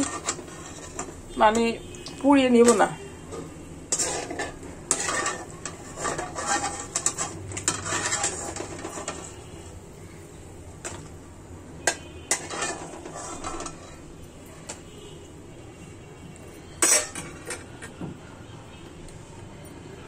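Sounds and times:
metal utensils clinking on pots: 0:00.0 - 0:09.4, 0:10.8 - 0:11.1, 0:11.8 - 0:14.1, 0:16.7 - 0:18.0.

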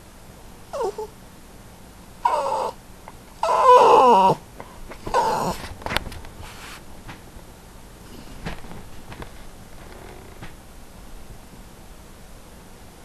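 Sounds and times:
small dog whining: 0:00.7 - 0:01.2, 0:02.2 - 0:02.8, 0:03.4 - 0:04.4, 0:05.0 - 0:05.6.

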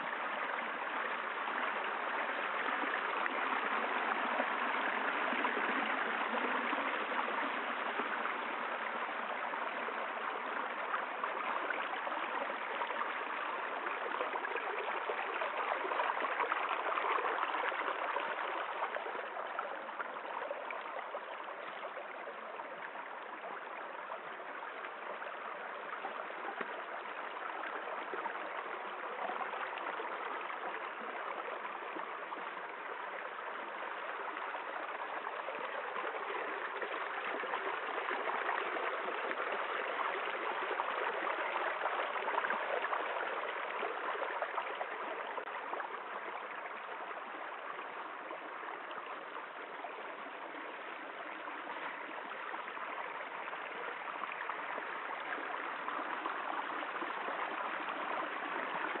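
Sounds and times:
stream splashing over stones: 0:00.0 - 0:59.0.

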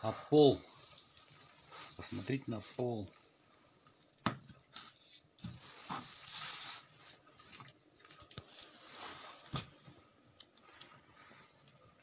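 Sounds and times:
brief hiss: 0:05.6 - 0:07.0.

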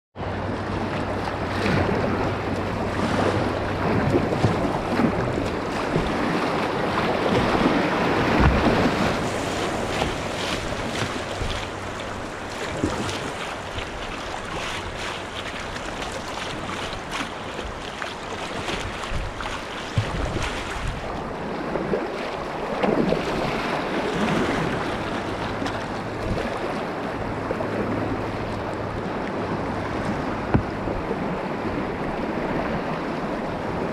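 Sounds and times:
river current rushing and splashing: 0:00.2 - 0:33.9
wind buffeting microphone: 0:00.2 - 0:33.9
paddle blades splashing: 0:00.3 - 0:33.9.

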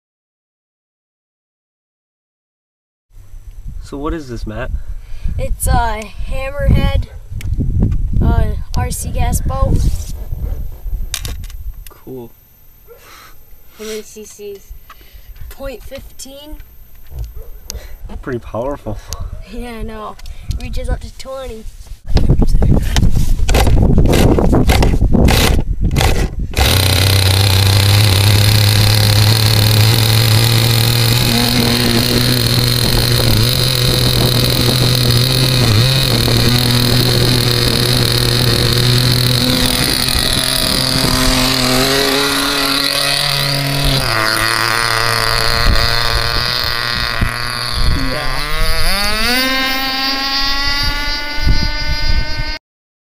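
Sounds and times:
model boat engine starting: 0:23.5 - 0:52.6.

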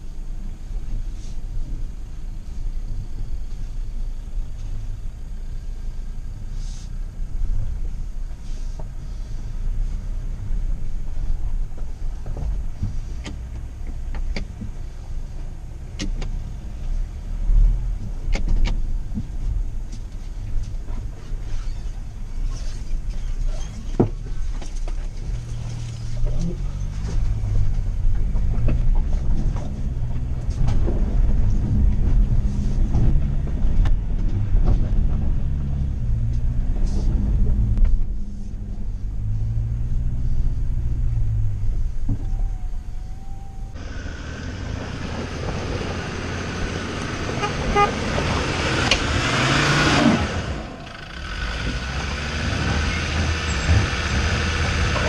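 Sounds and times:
vehicle crawling over stones: 0:16.7 - 0:42.1, 0:43.7 - 0:55.0
off-road vehicle engine revving: 0:22.4 - 0:42.2, 0:42.8 - 0:55.0.

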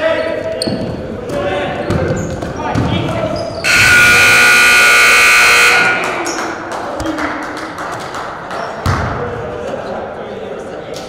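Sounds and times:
scoreboard buzzer: 0:03.7 - 0:06.2.

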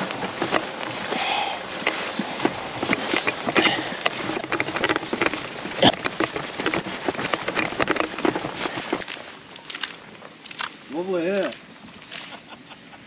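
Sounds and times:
tackle box rattling: 0:00.0 - 0:10.8.

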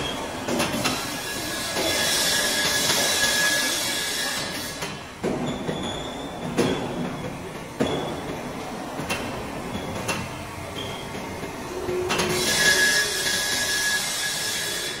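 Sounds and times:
metallic scraping and rubbing: 0:11.8 - 0:15.0
hiss: 0:12.3 - 0:15.0.

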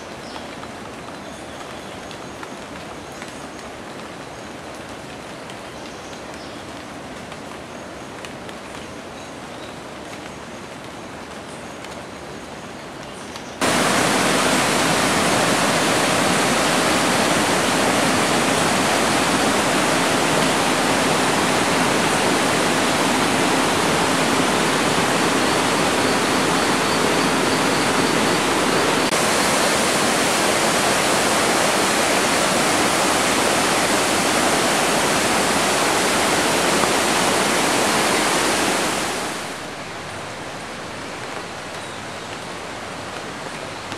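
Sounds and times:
loud steady rushing noise: 0:13.6 - 0:40.2.

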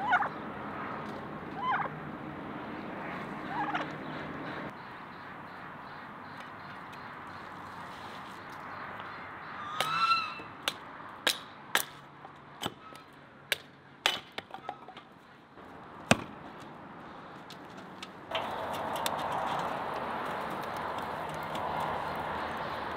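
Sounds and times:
honking bird call: 0:03.4 - 0:07.5, 0:09.1 - 0:10.6.

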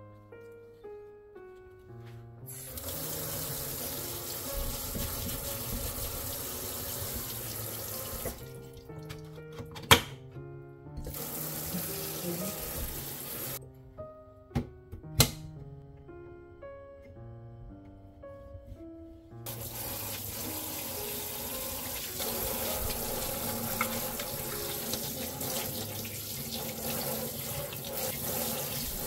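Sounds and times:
light background music: 0:00.0 - 0:29.0
tap running into metal sink: 0:04.2 - 0:10.1, 0:21.8 - 0:29.0.

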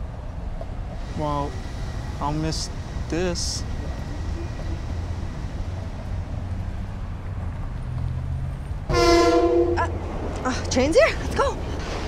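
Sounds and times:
train low rumble: 0:00.0 - 0:12.0
train horn: 0:08.9 - 0:09.9.

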